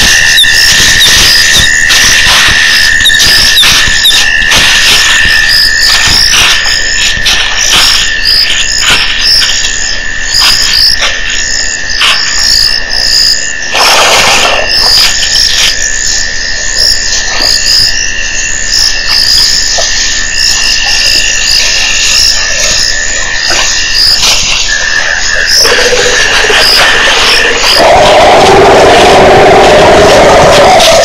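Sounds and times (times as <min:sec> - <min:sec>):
frogs calling: 0:00.0 - 0:31.0
steady high whine: 0:00.0 - 0:31.0
harsh noisy burst: 0:13.7 - 0:15.8, 0:23.9 - 0:31.0.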